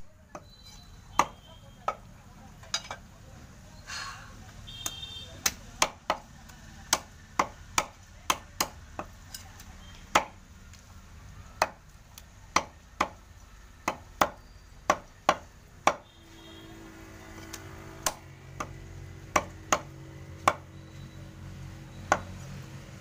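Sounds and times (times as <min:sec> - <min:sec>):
cleaver chopping on wooden block: 0:01.2 - 0:02.1, 0:04.8 - 0:06.3, 0:06.9 - 0:09.2, 0:10.1 - 0:10.4, 0:11.6 - 0:11.8, 0:12.5 - 0:13.2, 0:13.8 - 0:16.1, 0:18.0 - 0:20.7, 0:22.1 - 0:22.4.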